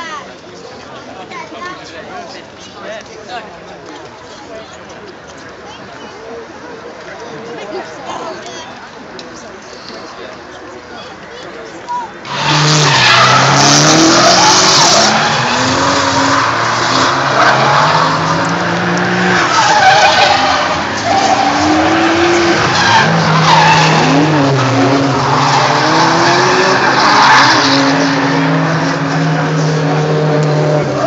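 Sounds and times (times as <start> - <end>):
tyres screeching: 12.2 - 29.9
car engines revving hard: 12.2 - 31.0.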